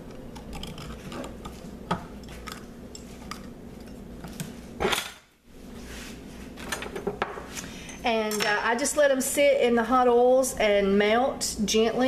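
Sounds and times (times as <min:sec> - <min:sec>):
rustling scrape: 0:05.7 - 0:06.6.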